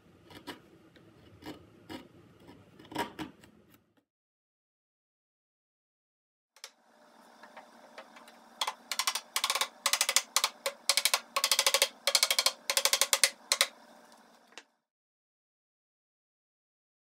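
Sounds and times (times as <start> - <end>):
faint hum: 6.6 - 14.8
mallet tapping wood: 8.6 - 13.8.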